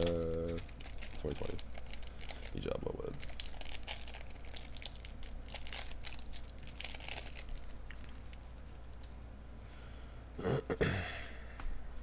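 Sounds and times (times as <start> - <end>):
plastic wrapper crinkling: 0.0 - 9.2.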